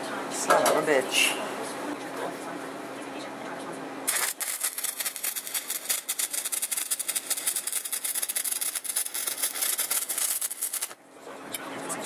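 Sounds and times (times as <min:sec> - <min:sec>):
welding arc crackling: 0:04.1 - 0:11.0.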